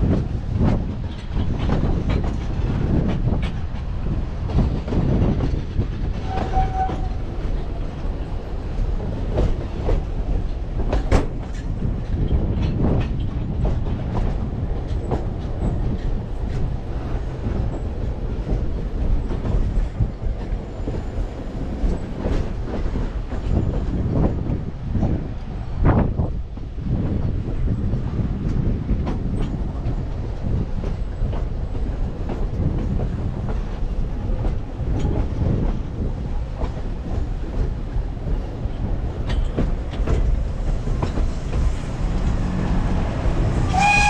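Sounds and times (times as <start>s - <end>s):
train rumbling: 0.0s - 44.0s
wheels clacking on rails: 0.0s - 44.0s.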